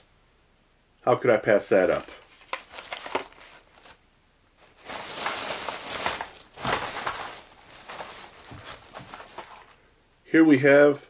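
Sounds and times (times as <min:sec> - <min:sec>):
plastic bag rustling: 0:01.9 - 0:04.0, 0:04.6 - 0:09.8.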